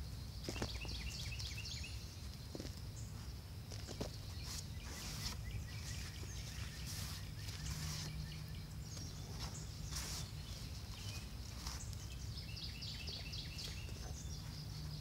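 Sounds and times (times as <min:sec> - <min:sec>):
low outdoor rumble: 0:00.0 - 0:15.0
hand rustling through soil: 0:03.7 - 0:15.0.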